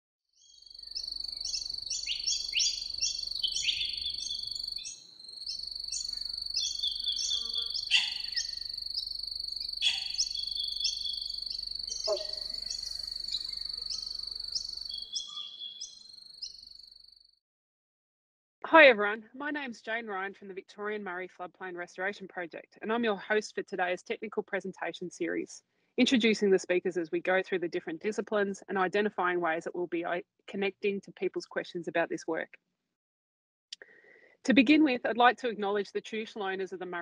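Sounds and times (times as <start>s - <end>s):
birds chirping: 0.4s - 16.7s
high-pitched insect drone: 0.6s - 17.3s.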